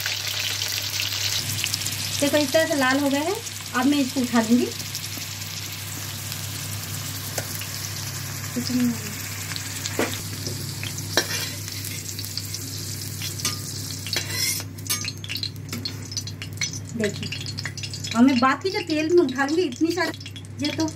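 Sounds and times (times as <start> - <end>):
frying in hot oil: 0.0 - 20.9
spoon clinking and scraping wok: 11.1 - 12.1, 13.2 - 17.9.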